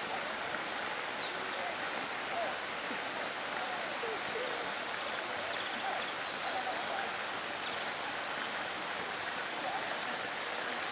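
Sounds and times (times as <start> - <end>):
rainforest ambience hiss: 0.0 - 10.9.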